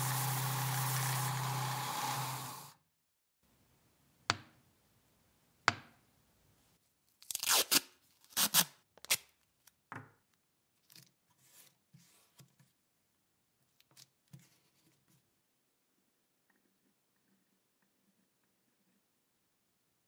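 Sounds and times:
masking tape ripping: 7.2s - 9.3s.

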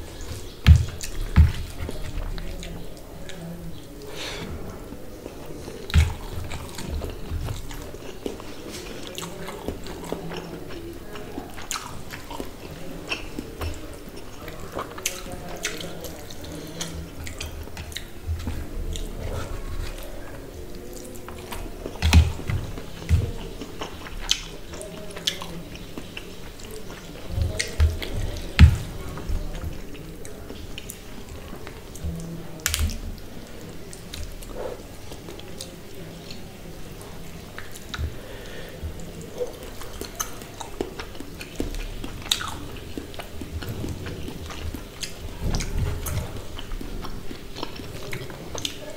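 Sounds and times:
chewing: 0.0s - 48.9s
wet clicks: 32.6s - 33.0s.

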